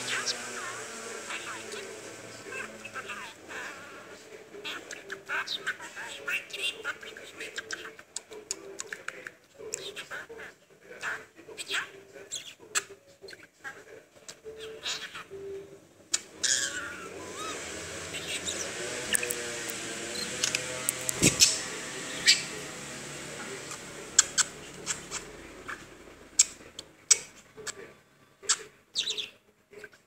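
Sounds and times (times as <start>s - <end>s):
budgerigar chattering: 0.0s - 8.3s, 14.5s - 15.4s, 16.4s - 19.3s, 21.2s - 22.7s, 23.5s - 27.8s, 28.5s - 30.0s.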